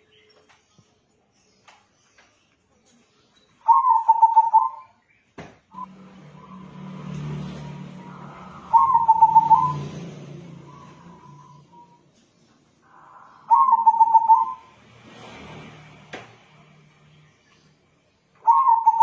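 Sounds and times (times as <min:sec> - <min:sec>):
dove cooing: 0:03.7 - 0:04.8, 0:07.6 - 0:12.0, 0:12.9 - 0:14.7, 0:18.4 - 0:19.0.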